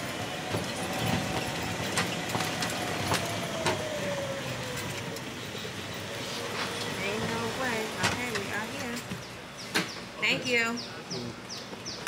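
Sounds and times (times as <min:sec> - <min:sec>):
golf cart motor whine: 0:00.0 - 0:09.1
tyres rumbling: 0:00.0 - 0:11.8.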